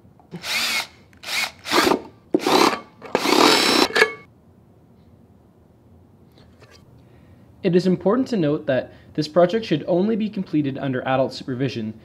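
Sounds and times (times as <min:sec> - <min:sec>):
power drill boring metal lid: 0:00.4 - 0:04.2.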